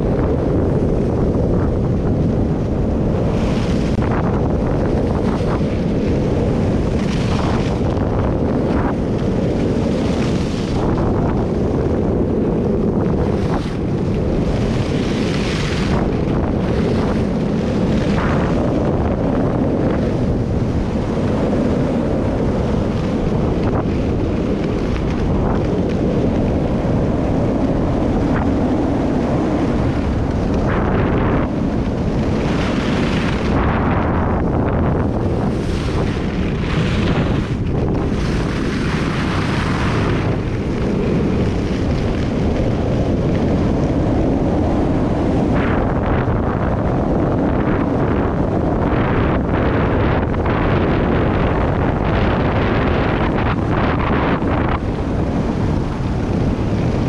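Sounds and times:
wind buffeting microphone: 0.0 - 57.0
ski edges scraping snow: 5.0 - 11.0.

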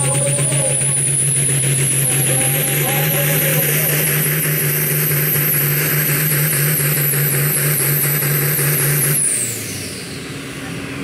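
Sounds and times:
diesel engine running under load: 0.0 - 11.0
high turbo whistle: 6.5 - 10.6.

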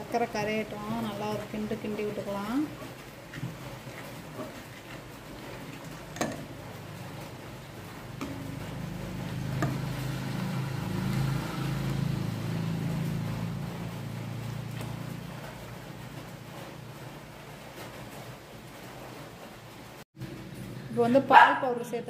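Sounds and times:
ladle stirring in steel pot: 0.0 - 12.1
ladle knocking against pot: 6.1 - 6.5.

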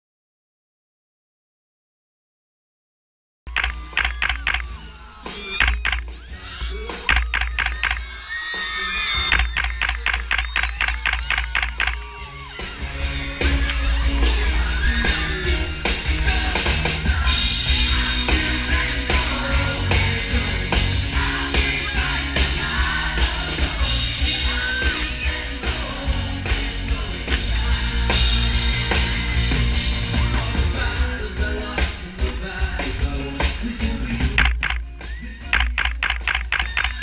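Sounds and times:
bass line: 3.5 - 37.0
live pop-rock band: 3.5 - 37.0
man singing: 12.9 - 36.0.

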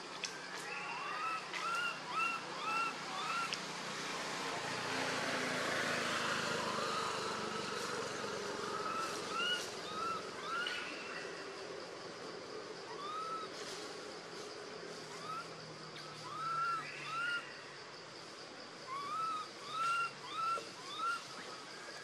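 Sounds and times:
baby monkey squeaky calls: 1.1 - 3.6, 8.9 - 10.7, 13.0 - 13.5, 16.2 - 17.4, 18.9 - 21.2.

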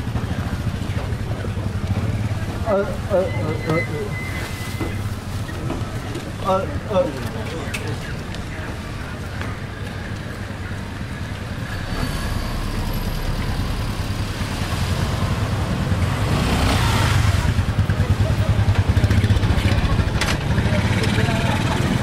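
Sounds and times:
street traffic: 0.0 - 22.0
motor scooter passing: 10.2 - 22.0.

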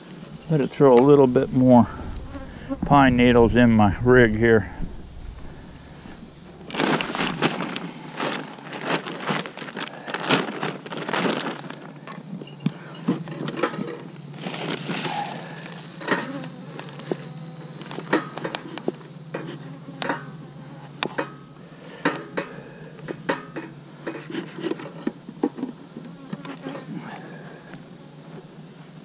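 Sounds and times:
honeybees buzzing: 0.0 - 9.0, 14.0 - 22.0.

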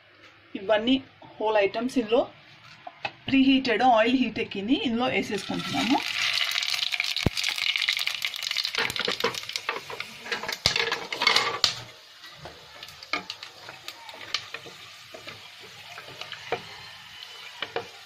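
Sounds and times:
spices sizzling in hot oil: 5.2 - 18.0.

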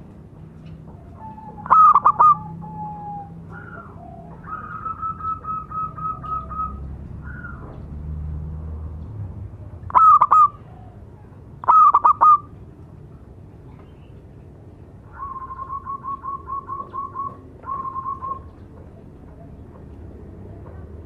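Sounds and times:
dove cooing: 0.9 - 7.7, 9.9 - 12.5, 15.1 - 19.8.

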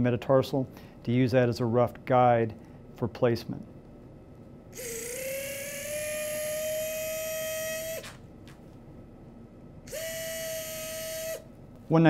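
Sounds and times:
power wire driver whining: 4.8 - 8.8, 9.9 - 11.6.

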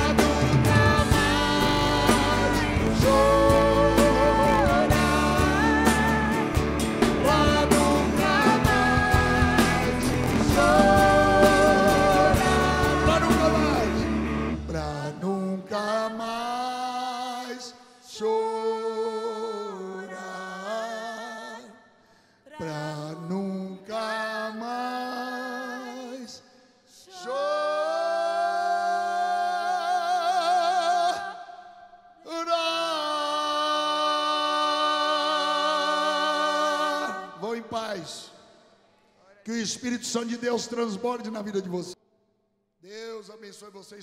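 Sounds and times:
band with bass and drums: 0.0 - 14.7
person singing: 0.0 - 21.8, 22.5 - 26.4, 27.0 - 31.6, 32.2 - 37.8.

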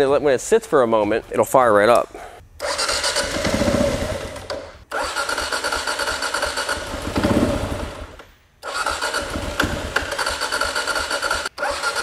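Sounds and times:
motorcycle engine cranking and sputtering: 2.6 - 12.0.

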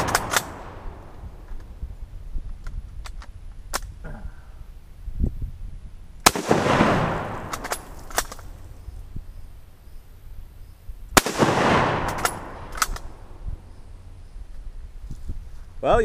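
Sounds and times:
rifle bolt clicking: 0.0 - 0.6, 12.0 - 13.2
rifle shots with echo: 0.0 - 1.4, 6.2 - 8.6, 11.2 - 13.4.

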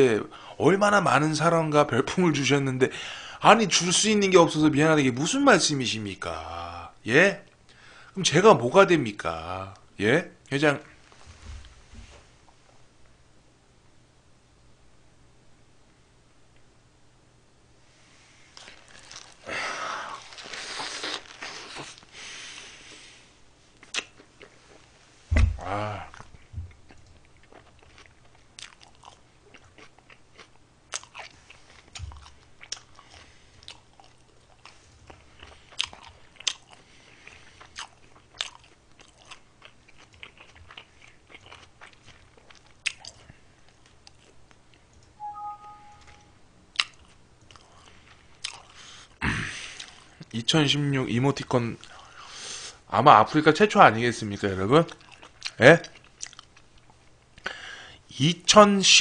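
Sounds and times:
chewing and crunching food: 18.5 - 23.0, 23.7 - 25.0, 26.0 - 45.0, 46.7 - 50.4, 54.8 - 57.6.

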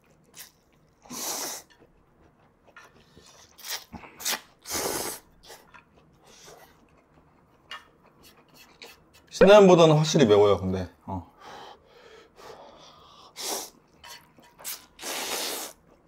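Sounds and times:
man slurping noodles: 1.0 - 1.7, 3.4 - 5.6, 14.6 - 15.8
soft mouth sounds: 3.0 - 9.3, 14.4 - 16.0.

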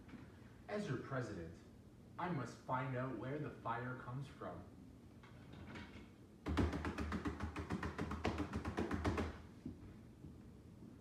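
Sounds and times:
rapid laptop keyboard typing: 6.5 - 9.4.

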